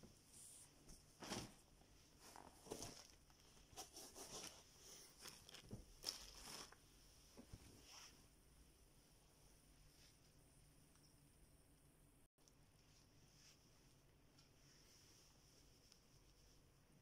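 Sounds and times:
fabric rustling and handling: 0:00.1 - 0:08.4.

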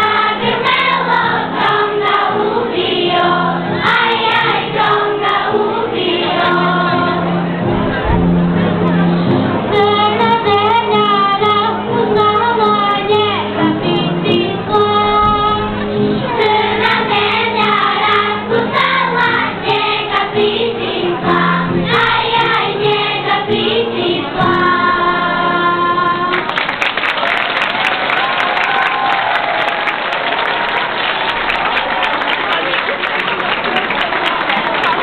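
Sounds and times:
children's choir singing: 0:00.0 - 0:08.0, 0:09.5 - 0:26.6
applause: 0:26.3 - 0:35.0.

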